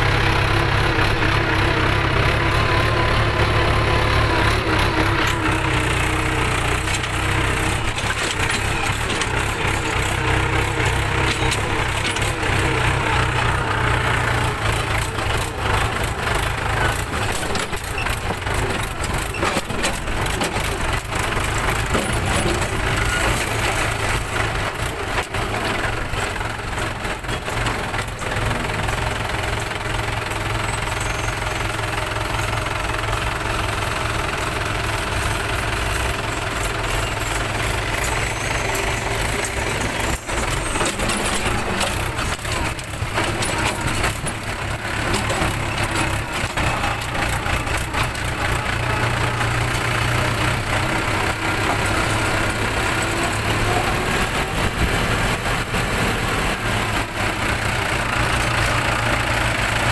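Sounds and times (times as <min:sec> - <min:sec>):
tractor engine under load: 0:00.0 - 0:59.9.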